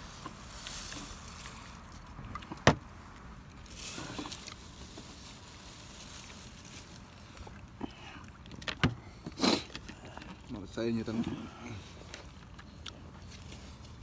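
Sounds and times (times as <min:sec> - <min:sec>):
soft rustling: 0:00.0 - 0:02.2, 0:02.9 - 0:08.4
low background noise: 0:00.0 - 0:14.0.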